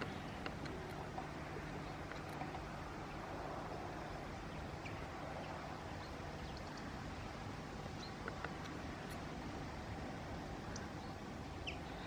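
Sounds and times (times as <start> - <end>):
outdoor background hiss: 0.0 - 12.0
faint high bird chirps: 10.8 - 12.0.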